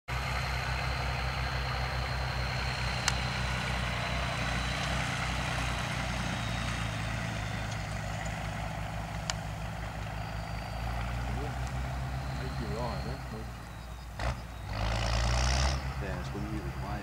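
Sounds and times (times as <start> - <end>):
engine idling: 0.1 - 17.0.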